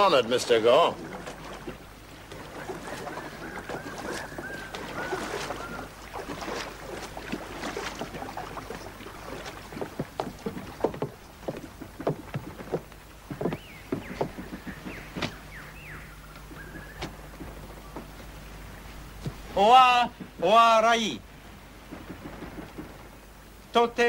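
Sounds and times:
long wavering whistle: 0:03.0 - 0:06.0
irregular knocks and clatters: 0:07.0 - 0:15.5, 0:19.2 - 0:20.8, 0:21.7 - 0:23.4.

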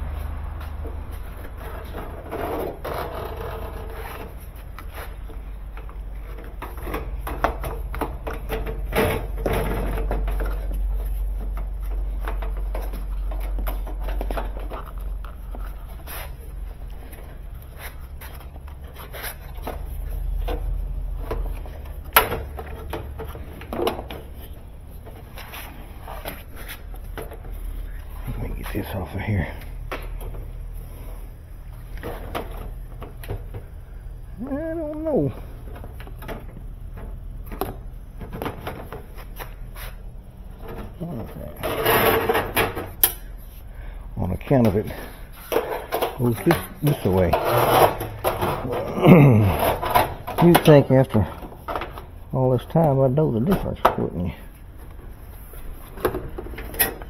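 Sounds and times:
steady low hum: 0:00.0 - 0:57.0
plastic hose scraping on metal: 0:01.4 - 0:05.3, 0:44.9 - 0:52.0.

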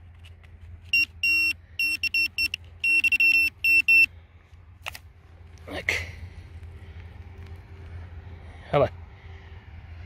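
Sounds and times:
metal detector beeping: 0:00.8 - 0:04.1.

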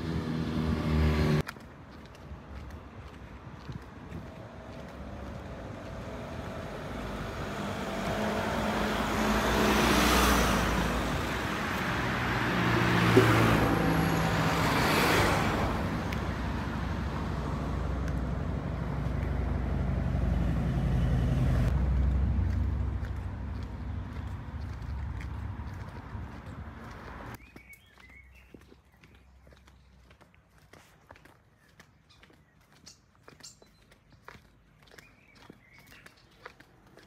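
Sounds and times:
traffic rushing past: 0:00.0 - 0:01.5, 0:02.2 - 0:27.4
low engine hum: 0:00.0 - 0:27.4.

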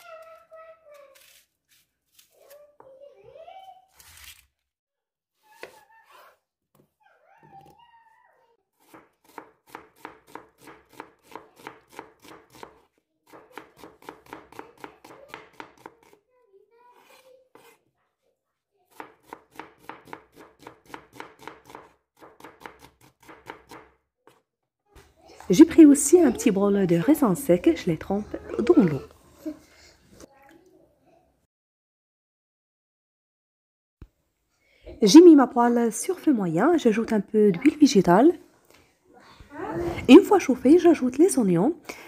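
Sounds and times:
onion skin tearing and crackling: 0:01.1 - 0:02.5, 0:03.9 - 0:04.5
knife squeaking on onion: 0:05.4 - 0:06.4
knife slicing onion on wooden board: 0:08.8 - 0:16.2, 0:16.9 - 0:17.8, 0:18.9 - 0:24.4.

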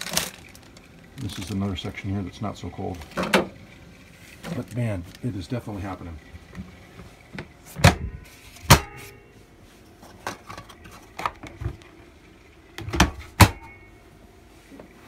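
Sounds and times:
fridge lid clunks and clicks: 0:12.8 - 0:13.8.

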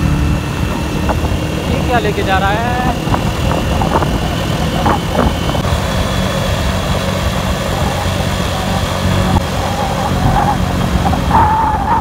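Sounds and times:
vehicle engine running: 0:00.0 - 0:12.0
wind rushing over microphone: 0:00.0 - 0:12.0.

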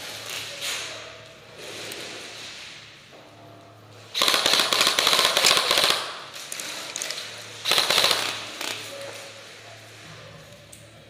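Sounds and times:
airsoft rifle automatic bursts: 0:04.2 - 0:06.2, 0:07.6 - 0:08.7.

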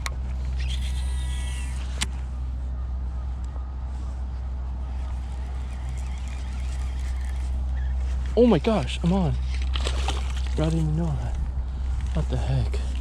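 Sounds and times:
fishing reel spool whirring: 0:00.0 - 0:02.1, 0:04.8 - 0:10.8
low rumble: 0:00.0 - 0:13.0
fishing reel clicks: 0:05.6 - 0:07.6.

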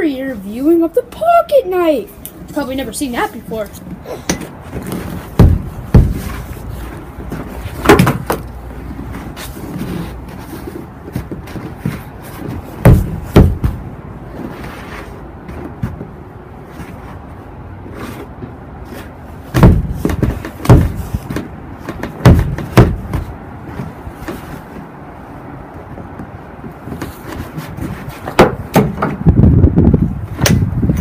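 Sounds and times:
light footfalls: 0:04.4 - 0:31.0
boot stamping thuds: 0:04.8 - 0:06.6, 0:07.2 - 0:08.4, 0:11.1 - 0:13.9, 0:19.5 - 0:23.9.

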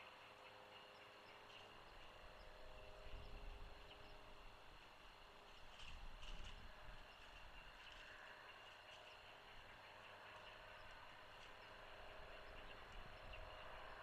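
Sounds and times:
faint outdoor hiss and hum: 0:00.0 - 0:14.0.

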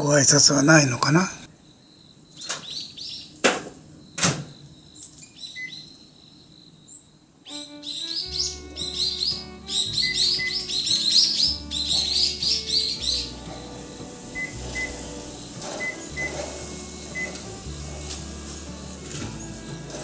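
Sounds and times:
rapid high bird chirping: 0:07.4 - 0:20.0
background music with steady bass: 0:07.6 - 0:20.0.

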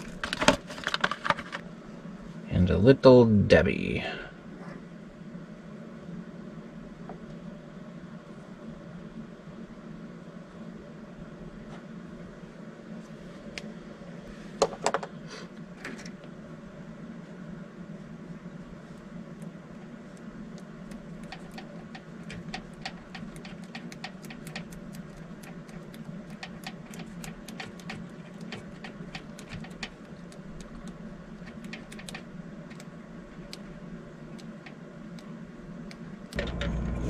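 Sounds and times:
steady low hum: 0:00.0 - 0:37.0
small clicks and ticks: 0:18.9 - 0:36.8.

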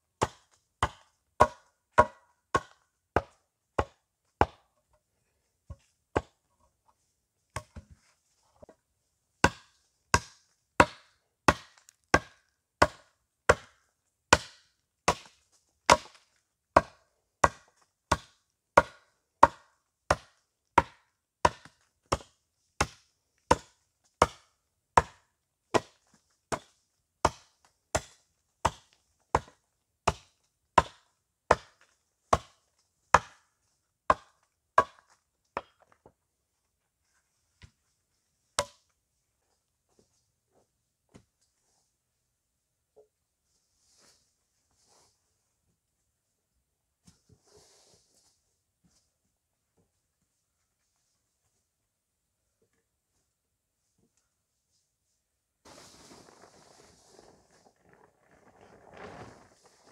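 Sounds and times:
hatchet chopping wood: 0:00.2 - 0:04.7, 0:09.4 - 0:33.5, 0:34.1 - 0:35.8, 0:38.6 - 0:38.8.

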